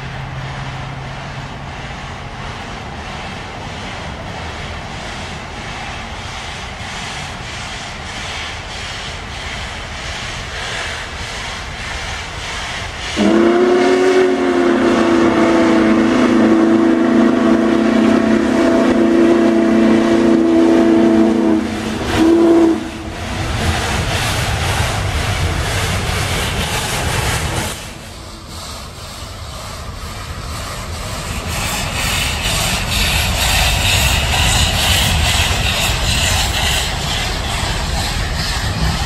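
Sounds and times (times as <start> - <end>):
steam locomotive rumble and hiss: 0.0 - 39.0
steam whistle blasts: 13.1 - 23.4.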